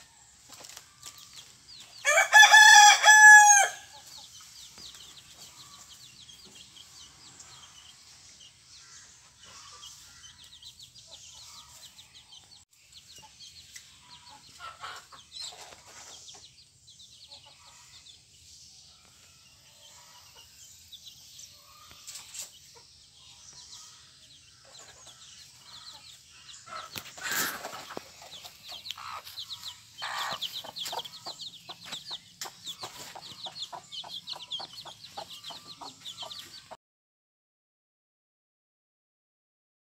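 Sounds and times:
chicks peeping: 0.0s - 36.8s
hen clucking: 24.8s - 36.8s.

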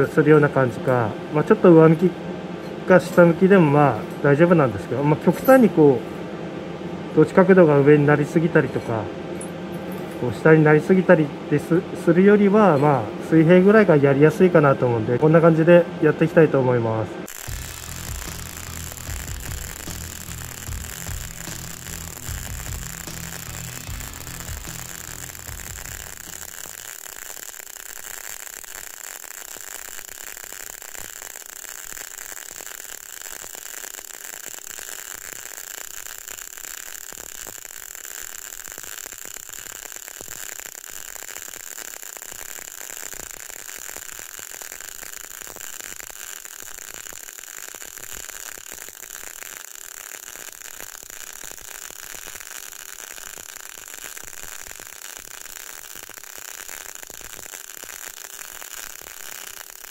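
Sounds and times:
arc welding crackle: 17.2s - 59.9s.

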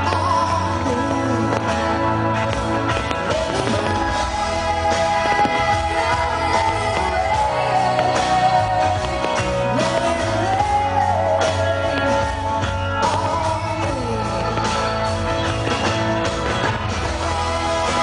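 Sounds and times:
pop song with singing and band: 0.0s - 18.0s.

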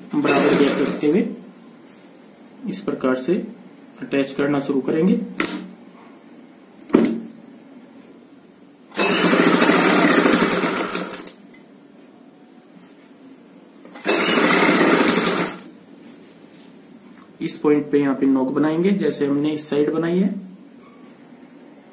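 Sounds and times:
sewing machine stitching: 0.0s - 1.2s, 8.9s - 11.4s, 13.9s - 15.7s.

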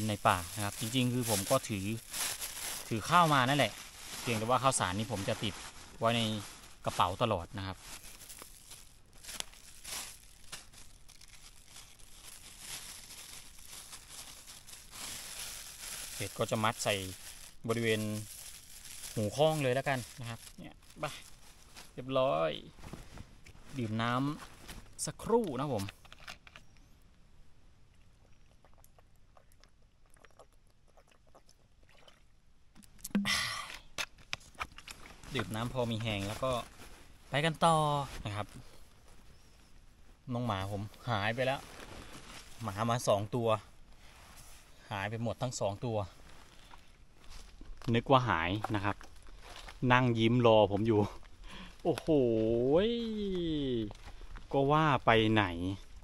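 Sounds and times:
bag crinkling and rustling: 0.0s - 22.1s, 22.7s - 26.7s, 34.2s - 39.7s, 41.0s - 43.1s, 46.1s - 52.1s
person gulping water: 27.9s - 33.9s.

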